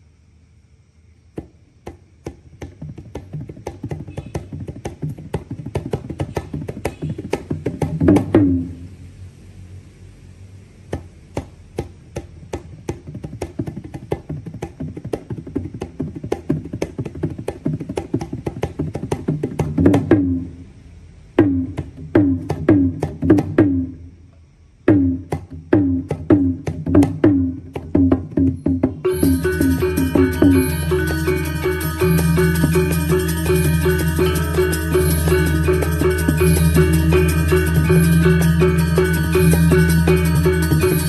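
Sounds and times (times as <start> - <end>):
gamelan ensemble playing: 29.0 - 41.0.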